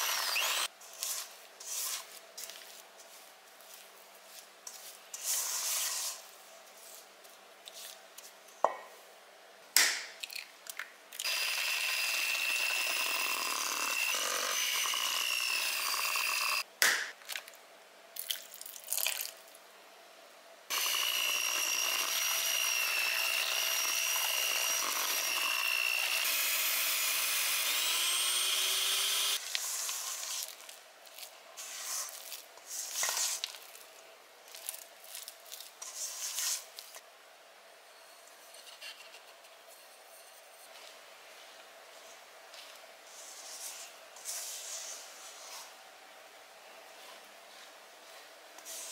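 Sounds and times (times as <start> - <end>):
electric hand mixer whining: 0.0 - 0.7, 11.2 - 16.6, 20.7 - 29.4.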